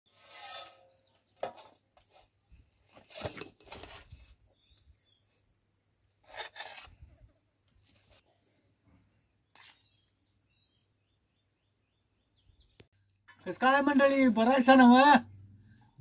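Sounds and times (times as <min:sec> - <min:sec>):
metal spatula scraping metal: 0:00.1 - 0:01.1.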